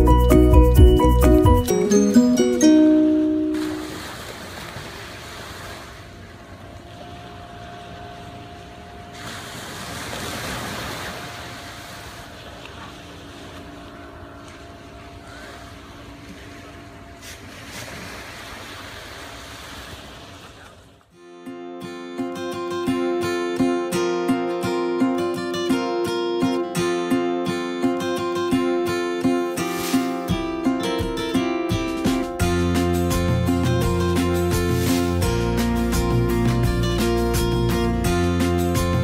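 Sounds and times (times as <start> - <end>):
distant speedboat engine: 1.7 - 21.1
small waves at shore: 3.4 - 21.1, 29.3 - 30.7.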